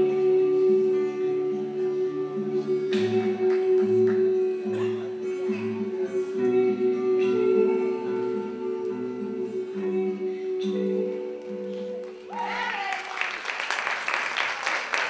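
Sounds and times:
slow song held notes: 0.0s - 12.4s
audience cheering and applause: 12.3s - 15.0s.

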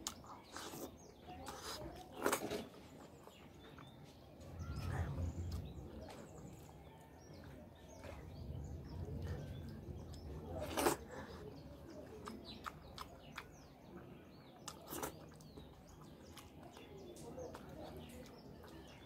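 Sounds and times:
chewing noises: 0.0s - 19.0s
small birds chirping: 0.0s - 19.0s
low rumble: 4.3s - 11.8s.

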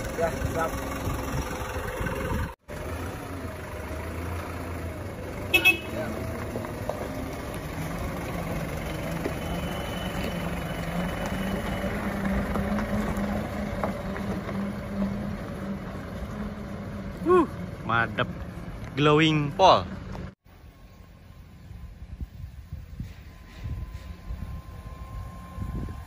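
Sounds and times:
truck engine pulling away: 0.0s - 26.0s
horn toots: 5.5s - 6.3s.

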